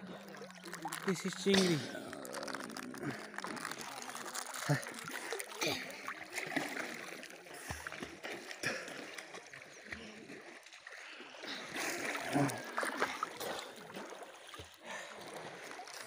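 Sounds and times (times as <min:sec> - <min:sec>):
water sloshing and splashing: 0:00.0 - 0:16.0.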